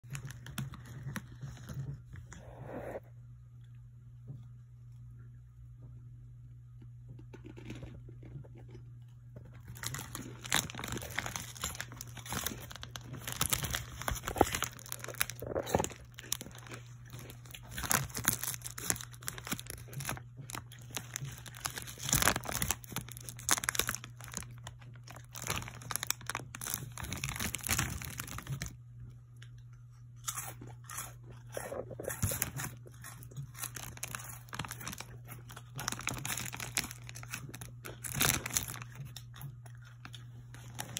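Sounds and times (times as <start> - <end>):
plastic snack bag crinkling: 0.0 - 2.1, 9.4 - 28.8, 30.2 - 40.9
steady low hum: 0.0 - 40.9.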